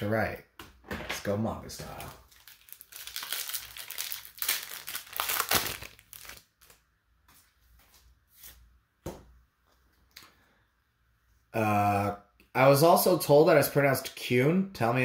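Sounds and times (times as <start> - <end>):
wrapper crinkling and tearing: 2.0 - 6.8.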